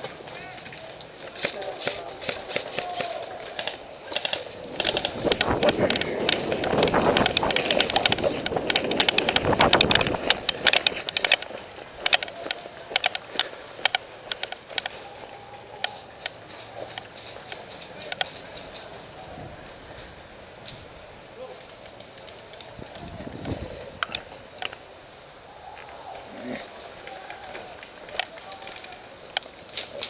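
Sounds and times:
gear clattering: 0:03.3 - 0:15.0.

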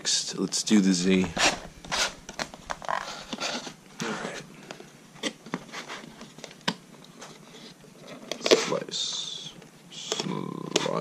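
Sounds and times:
cardboard packaging rustling: 0:00.9 - 0:08.8
small clicks and scrapes: 0:01.4 - 0:08.8.

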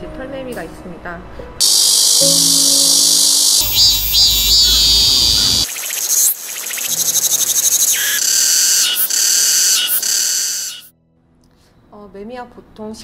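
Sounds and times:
cicadas singing: 0:01.6 - 0:10.9
rapidly pulsing cicada song: 0:01.6 - 0:10.9.

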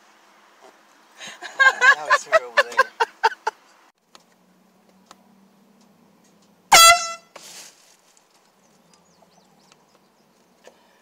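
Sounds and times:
air horn blast: 0:06.7 - 0:07.4.

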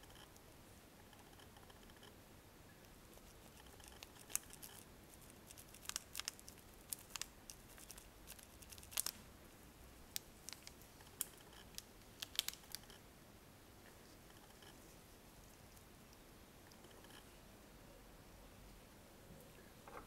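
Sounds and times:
plastic bag crinkling: 0:03.5 - 0:09.2, 0:10.2 - 0:12.9.

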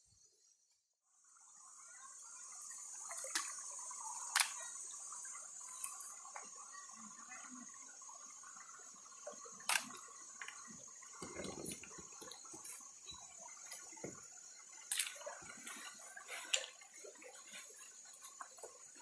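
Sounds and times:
creek water splashing: 0:13.6 - 0:19.0.

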